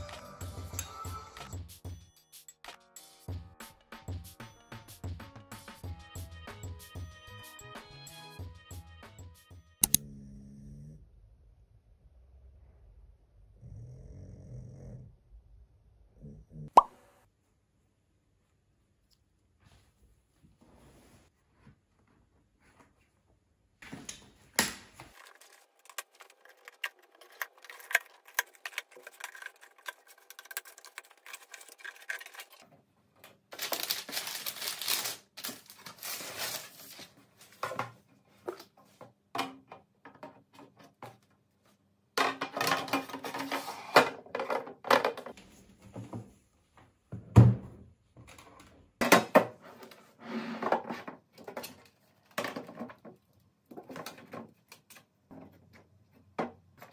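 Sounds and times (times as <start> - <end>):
cardboard and paper rustling: 25.0 - 32.7, 33.5 - 38.8.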